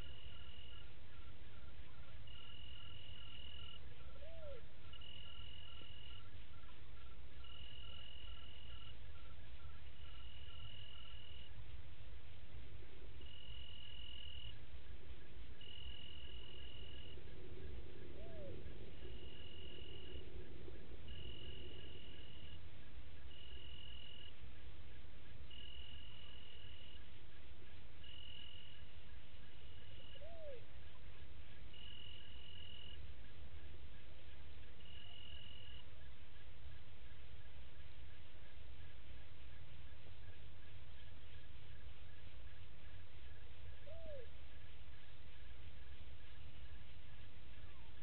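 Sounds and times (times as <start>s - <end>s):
cricket trilling: 0.0s - 0.9s, 1.5s - 11.6s, 12.8s - 36.0s
low background rumble: 11.5s - 28.0s.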